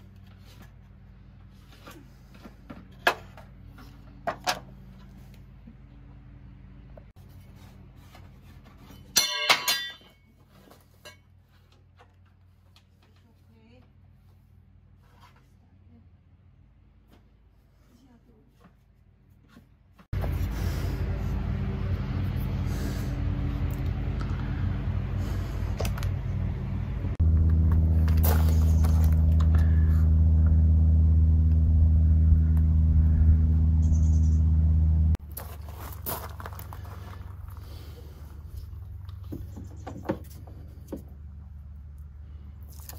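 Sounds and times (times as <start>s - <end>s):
metal square clinking on metal: 9.0s - 10.2s
engine idling: 20.2s - 35.7s
low steady hum: 20.2s - 42.9s.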